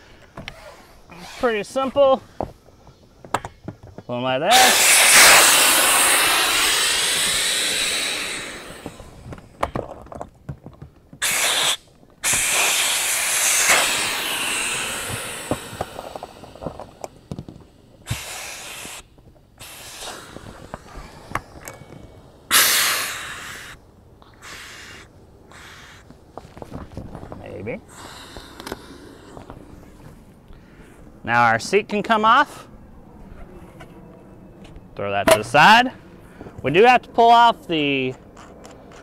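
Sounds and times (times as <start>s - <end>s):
air hissing from valves: 0.0s - 9.6s, 11.2s - 26.1s, 27.8s - 30.2s
valves clicking and knocking: 3.2s - 22.9s.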